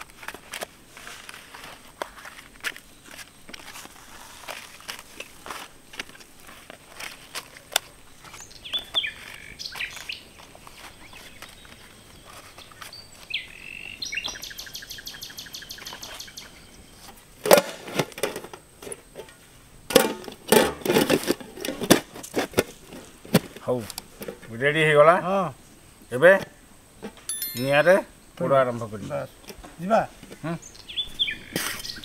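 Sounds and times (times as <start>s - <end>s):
birds chirping: 8.2s - 17.0s, 30.4s - 32.0s.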